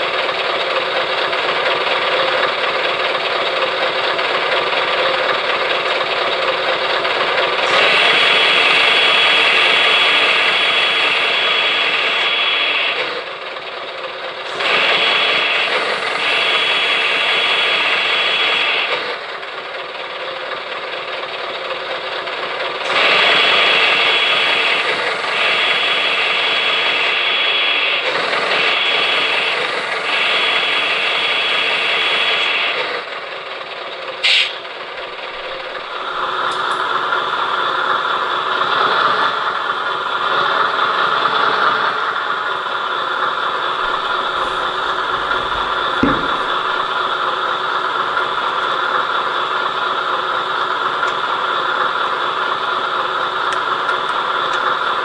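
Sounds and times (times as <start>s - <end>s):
hydraulic mechanical drone: 0.0s - 55.0s
high hydraulic whine: 7.5s - 13.6s, 14.4s - 19.2s, 22.8s - 33.4s, 34.1s - 55.0s.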